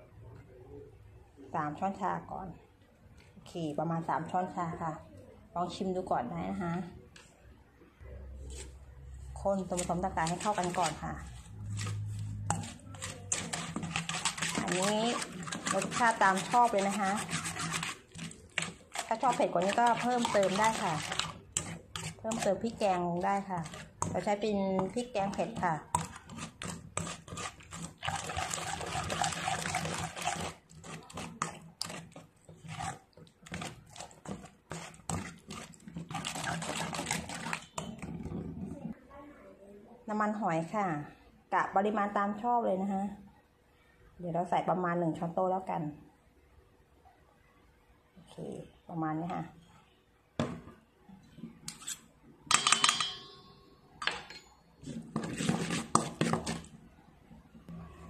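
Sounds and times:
spoon scraping metal bowl: 8.4 - 38.8, 51.6 - 53.3, 54.2 - 56.7
sticky squelching of mixture: 8.4 - 39.0, 54.8 - 56.8.

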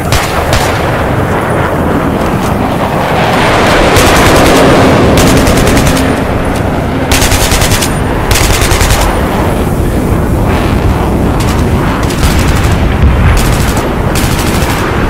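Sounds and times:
continuous rumble: 0.0 - 15.0
automatic gunfire: 3.8 - 6.2, 7.1 - 9.2, 11.4 - 15.0.

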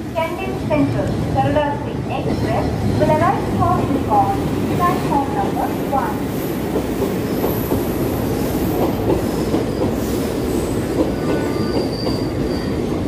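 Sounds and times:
train wheels rumbling on rails: 0.0 - 13.0
faint high wheel squeal: 9.7 - 13.0.

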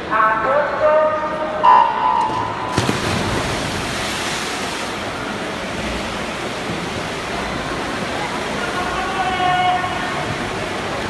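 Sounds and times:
swimmers diving into water: 1.7 - 8.6
swimmers splashing: 1.7 - 9.2.

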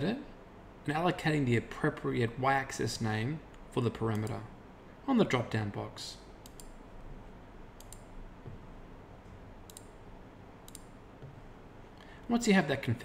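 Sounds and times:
computer mouse button clicking: 6.4 - 6.8, 7.8 - 8.1, 9.7 - 9.9, 10.7 - 10.9.

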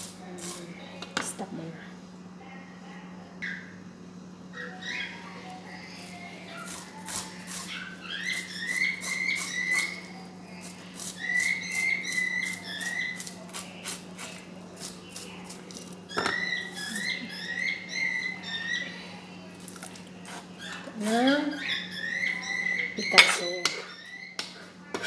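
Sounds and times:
knife scraping fish scales: 6.6 - 15.9.

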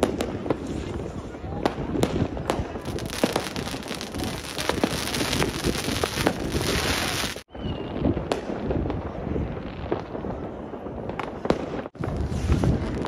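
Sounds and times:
firecrackers crackling: 0.0 - 13.0
sharp firework bangs: 1.7 - 7.5.

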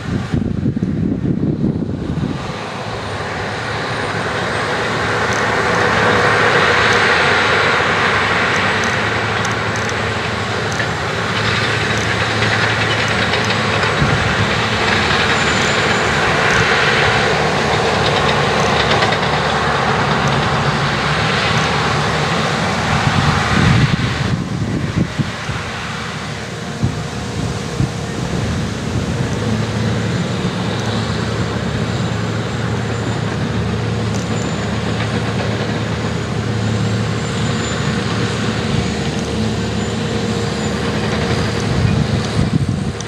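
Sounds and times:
tractor diesel engine under load: 0.0 - 43.0.

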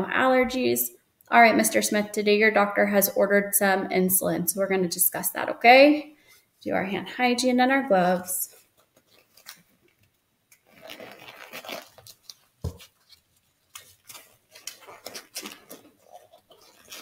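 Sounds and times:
rubber gloves rustling and squeaking: 7.8 - 17.0.

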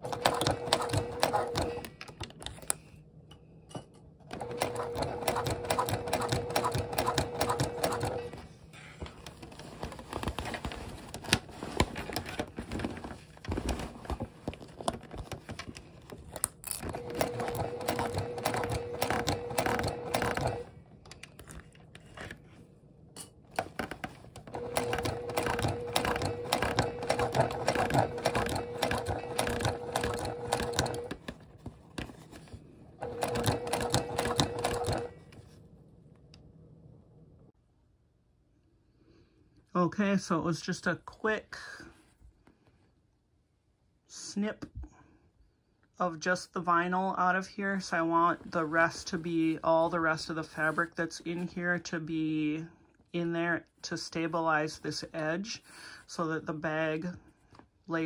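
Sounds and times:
sewing machine stitching: 0.0 - 2.0, 4.3 - 8.4, 16.7 - 20.8, 23.5 - 31.4, 33.0 - 35.2
clicks and handling noises: 1.1 - 4.5, 8.3 - 17.4, 18.2 - 33.4.

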